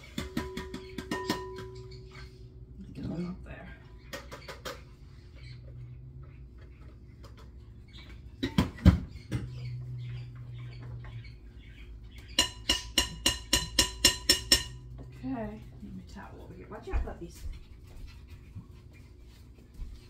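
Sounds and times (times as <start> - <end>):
ringing taps on glass bowl: 0.2 - 2.2, 12.3 - 15.0.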